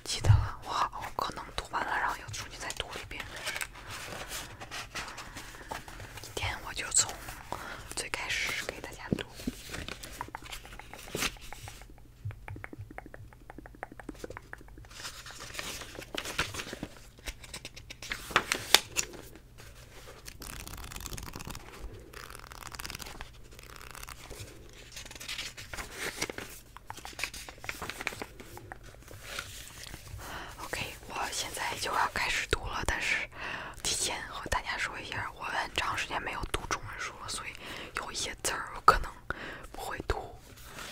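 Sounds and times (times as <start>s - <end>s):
book pages rustling: 1.0s - 12.0s, 14.1s - 32.2s, 40.4s - 40.9s.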